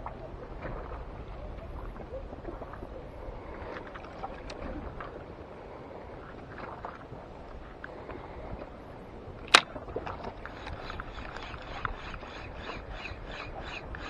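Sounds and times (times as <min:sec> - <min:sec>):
wind and water: 0:00.0 - 0:14.0
fishing reel ticking: 0:10.5 - 0:14.0.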